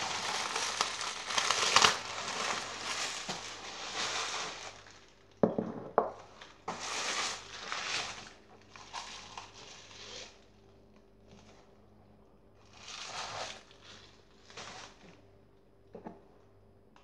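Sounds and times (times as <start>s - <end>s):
bubble wrap crinkling: 0.0s - 5.4s, 6.2s - 10.6s, 12.6s - 15.3s
ceramic bowl knocking on wood: 5.4s - 6.2s.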